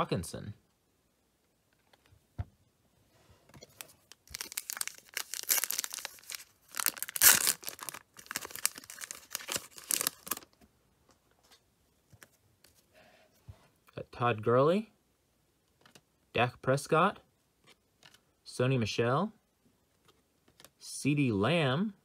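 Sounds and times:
foil wrapper tearing and crinkling: 0:03.8 - 0:10.5.

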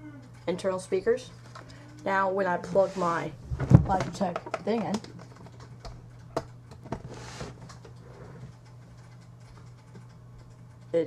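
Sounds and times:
low electrical hum: 0:00.0 - 0:11.0
faint clicks and knocks: 0:03.6 - 0:11.0.

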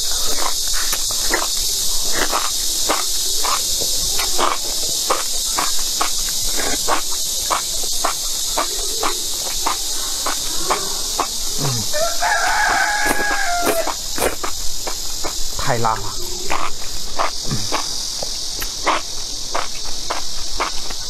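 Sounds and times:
insects chorus: 0:00.0 - 0:21.0
wet slurps and mouth smacks: 0:12.5 - 0:15.0.

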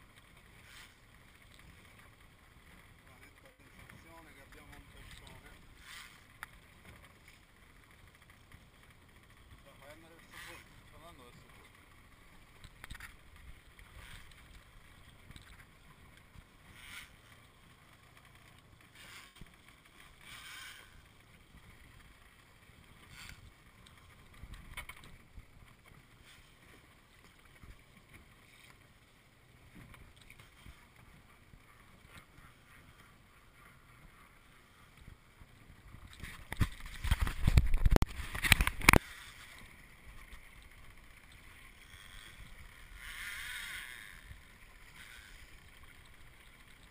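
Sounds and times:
water lapping against boat hull: 0:00.0 - 0:46.9
wind on microphone: 0:35.1 - 0:39.0.

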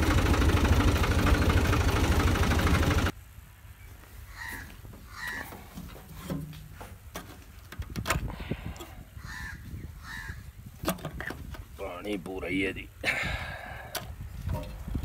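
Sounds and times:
crows cawing: 0:04.3 - 0:05.7, 0:09.2 - 0:10.4.

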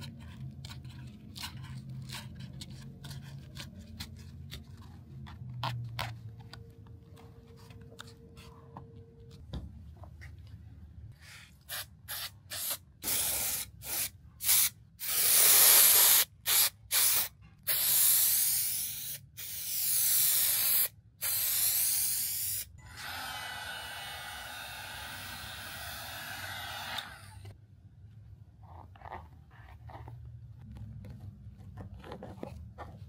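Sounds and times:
spray hissing from a nozzle: 0:12.5 - 0:22.7.

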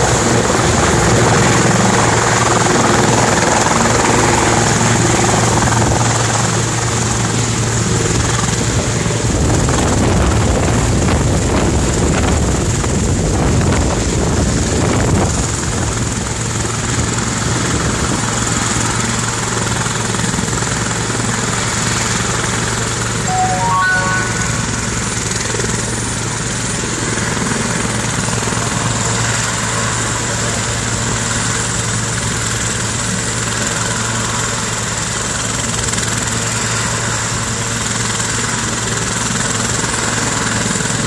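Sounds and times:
helicopter rotor drone: 0:00.0 - 0:23.3, 0:24.9 - 0:41.0
high whine: 0:23.3 - 0:25.6.

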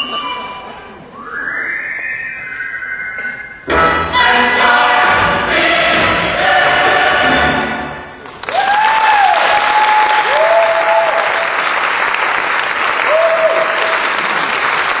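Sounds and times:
crowd whistles: 0:01.1 - 0:03.6
audience applauding: 0:08.2 - 0:15.0.

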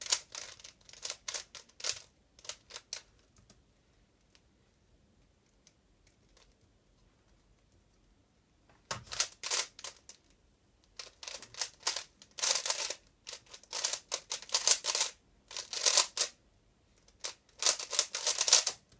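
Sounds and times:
puzzle cube layers clacking: 0:00.0 - 0:03.6, 0:08.9 - 0:10.3, 0:10.9 - 0:16.4, 0:17.1 - 0:18.9.

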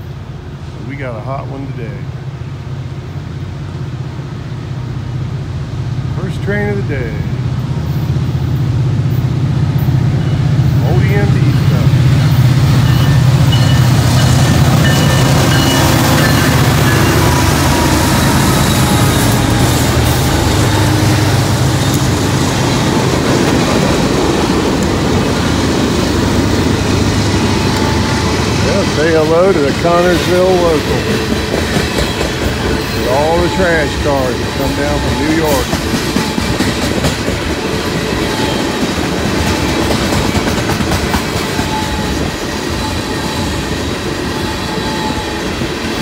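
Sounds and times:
diesel locomotive engine drone: 0:00.0 - 0:46.0
train wheels rumbling on rails: 0:00.0 - 0:46.0.

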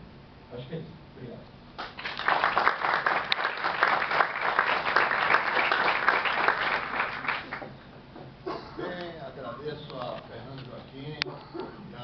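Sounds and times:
audience applauding: 0:01.8 - 0:07.8.

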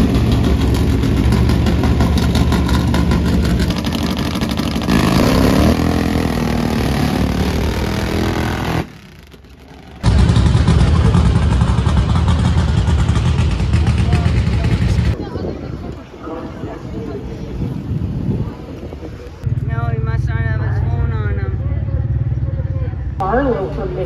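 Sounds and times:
race car engines running: 0:00.0 - 0:15.2
motorcycle engines revving: 0:00.0 - 0:15.4, 0:16.0 - 0:24.0.

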